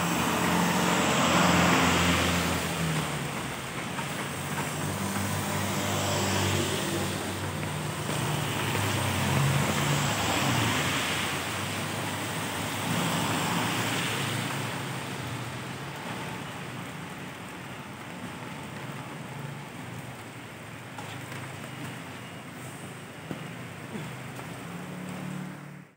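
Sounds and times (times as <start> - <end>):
scooter and car engines passing: 0.0 - 17.0, 23.5 - 25.9
steady rain: 0.0 - 25.9
tyres hissing on wet road: 0.0 - 25.9.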